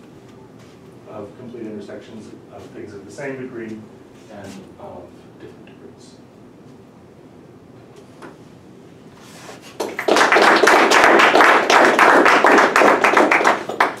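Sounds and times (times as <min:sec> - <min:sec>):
audience applauding: 0:09.8 - 0:14.0.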